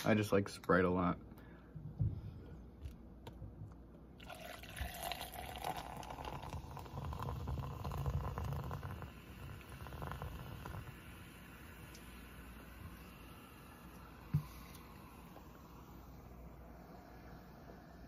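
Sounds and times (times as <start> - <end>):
soda fizzing pour into cup: 4.2 - 15.8.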